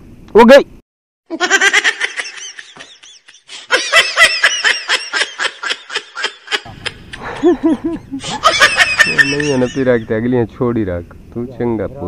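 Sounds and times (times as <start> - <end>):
person laughing hard: 1.3 - 10.0.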